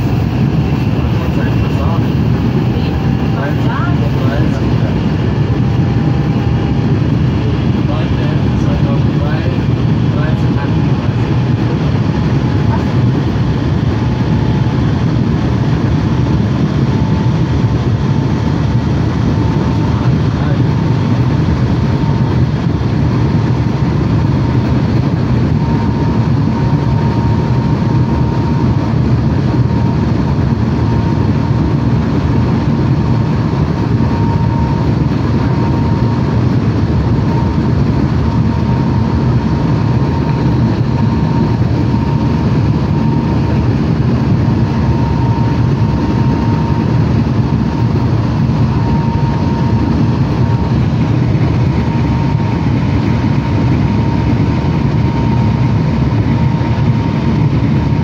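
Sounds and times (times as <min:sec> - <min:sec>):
train rumbling at speed: 0:00.0 - 0:13.4.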